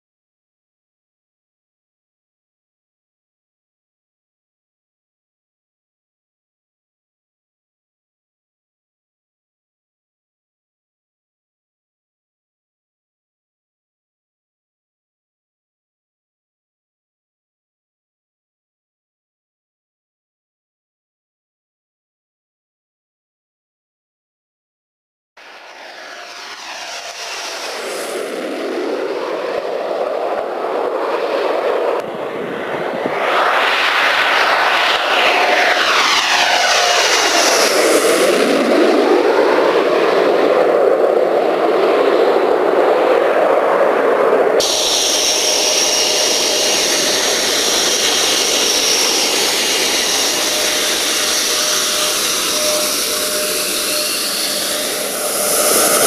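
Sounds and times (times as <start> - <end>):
high-pitched jet engine whine: 25.4 - 56.0
jet aircraft passing: 25.4 - 56.0.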